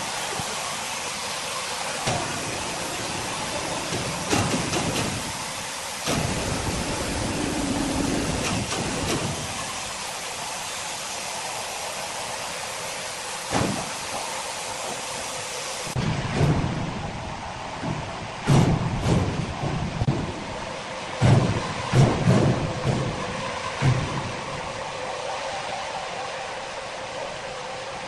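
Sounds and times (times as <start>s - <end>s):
sawmill machinery hiss: 0.0s - 16.0s.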